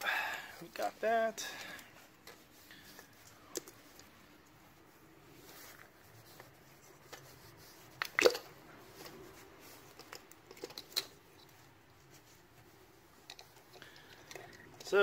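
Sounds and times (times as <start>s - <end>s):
plastic coil packs clicking: 8.0s - 9.1s.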